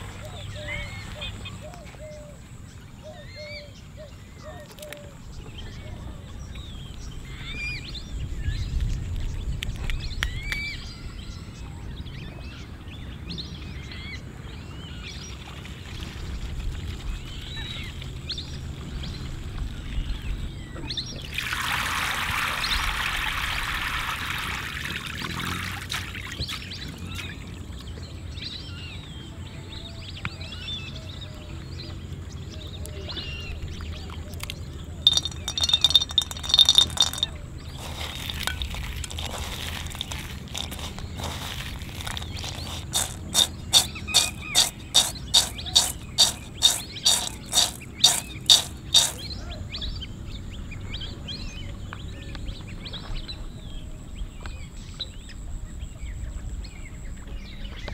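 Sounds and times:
small birds chirping: 31.7s - 52.7s
water pouring into steel bowl: 35.1s - 49.2s.

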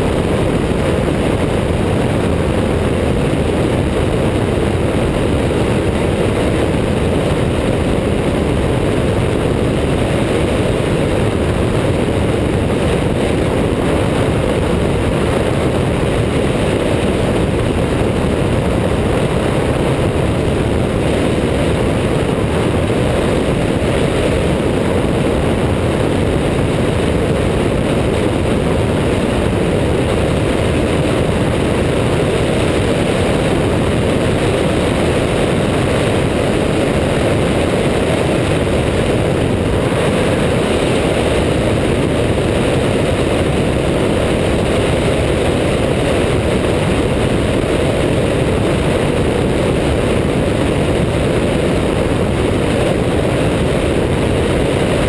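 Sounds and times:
propeller engine running: 0.0s - 55.0s
wind rushing: 0.0s - 55.0s.

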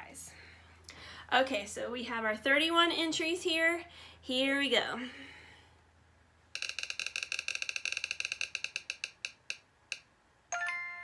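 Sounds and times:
prize wheel ticking: 6.6s - 10.0s
chime: 10.5s - 11.0s.

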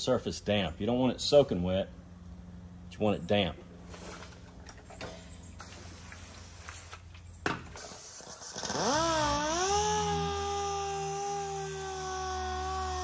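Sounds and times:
air sander whining: 7.8s - 13.0s.

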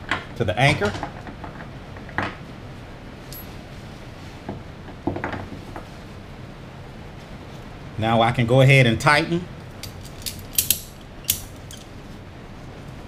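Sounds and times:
metal hook clinking and rattling: 9.8s - 11.9s.

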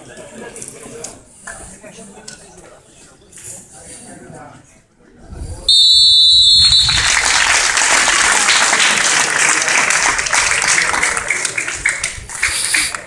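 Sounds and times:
applause: 6.6s - 13.0s.

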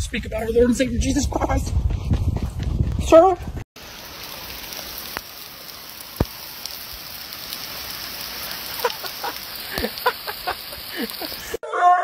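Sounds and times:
rain hissing: 3.8s - 11.6s.

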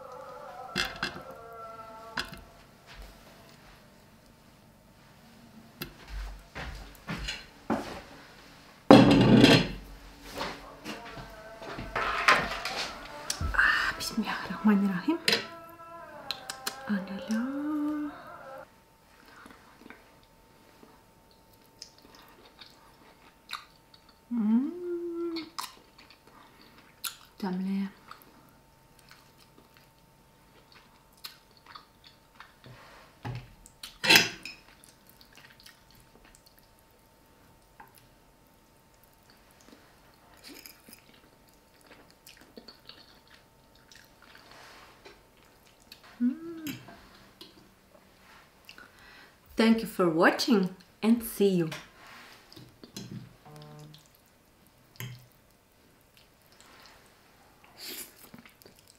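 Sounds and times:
short hummed tone: 53.4s - 54.0s.

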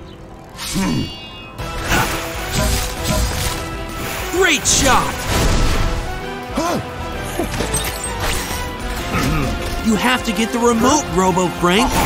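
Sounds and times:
cartoon action music: 0.4s - 12.0s.

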